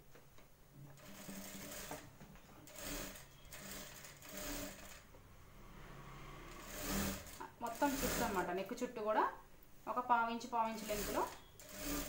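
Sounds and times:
sewing machine stitching: 0.9s - 5.1s, 6.4s - 8.5s, 10.6s - 12.0s.

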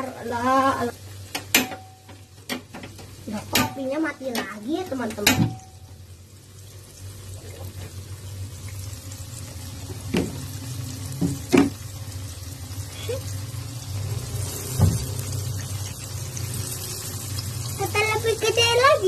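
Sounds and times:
chicken sizzling in oil: 0.0s - 19.0s.

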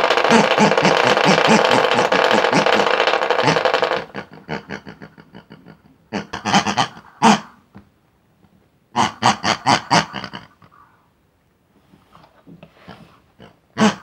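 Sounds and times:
motor ticking winding down: 0.0s - 4.1s
small motor buzzing rattle: 0.0s - 4.1s.

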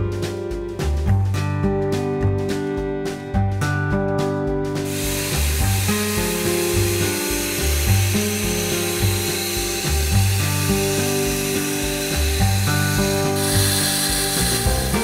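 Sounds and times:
background music with bass line: 0.0s - 15.0s
steady hiss: 4.8s - 15.0s.

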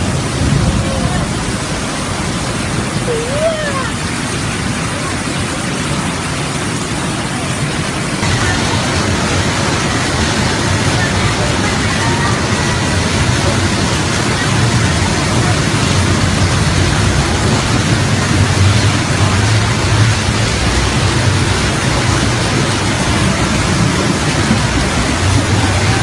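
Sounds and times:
floodwater rushing: 0.0s - 26.0s.

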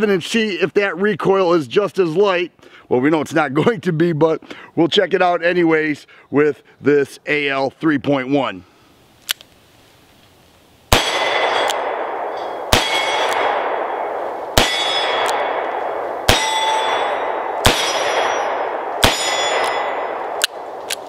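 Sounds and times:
revolver shots: 10.9s - 21.0s
steel targets clanging: 12.4s - 13.4s, 14.6s - 15.3s, 16.3s - 20.1s.

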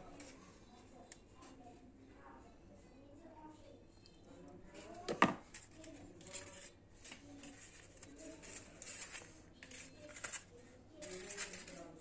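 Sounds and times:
paper liners rustling: 5.5s - 12.0s.

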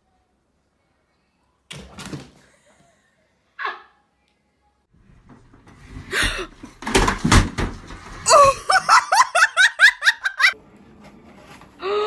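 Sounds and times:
television crashing to floor: 5.2s - 9.2s
person laughing: 8.3s - 10.6s.

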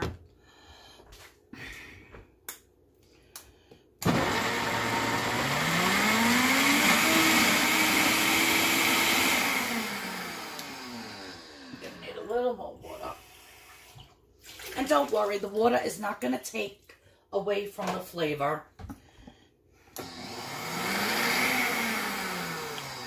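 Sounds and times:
blender motor running: 4.0s - 12.0s, 19.9s - 23.0s.

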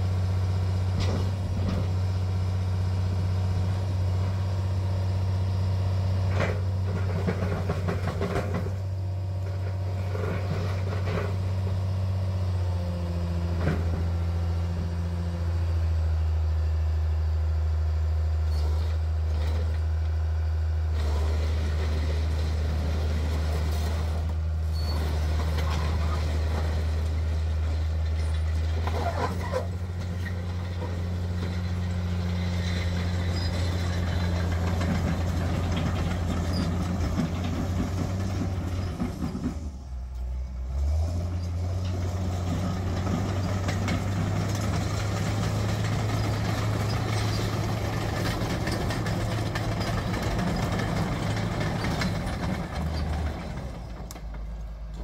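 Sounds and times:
diesel engine running: 0.0s - 55.0s
steel tracks rattling over gravel: 4.3s - 12.1s, 21.0s - 55.0s.

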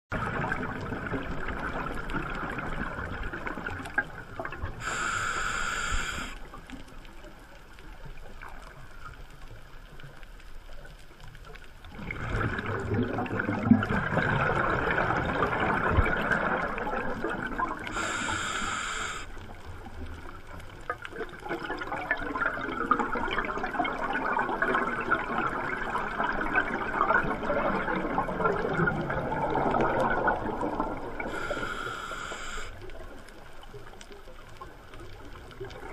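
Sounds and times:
regulator inhalation: 4.8s - 6.5s, 17.9s - 19.4s, 31.3s - 32.8s
bubbling exhalation: 12.0s - 18.2s.

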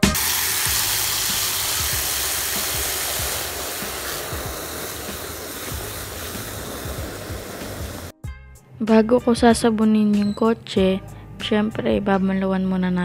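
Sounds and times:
hose spraying water into bucket: 0.0s - 8.1s.

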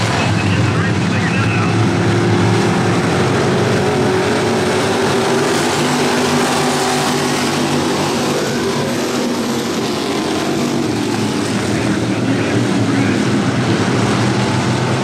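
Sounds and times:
race car engines roaring: 0.0s - 15.0s.

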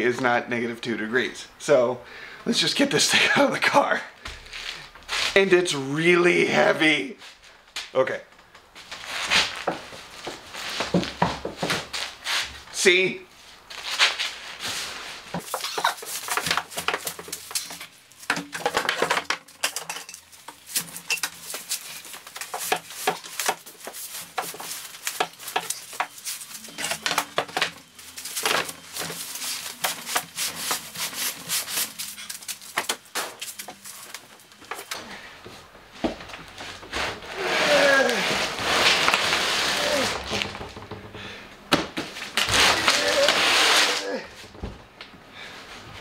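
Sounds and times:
heavy items knocking and scraping: 9.3s - 12.7s, 15.2s - 31.0s, 32.2s - 43.6s
cardboard box dragged: 36.6s - 40.4s, 42.4s - 44.0s.

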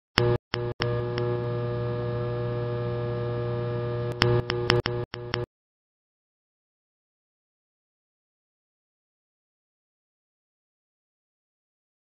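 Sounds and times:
sharp clicks: 0.2s - 1.3s, 4.1s - 5.5s
electrical hum: 0.2s - 5.5s.

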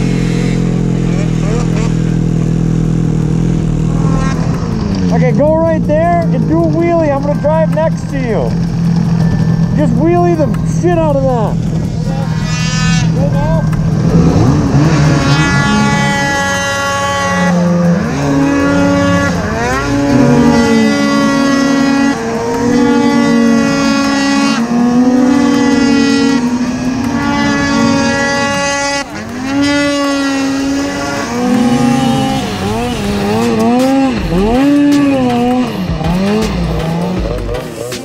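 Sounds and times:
snowmobile engines revving: 0.0s - 38.0s.

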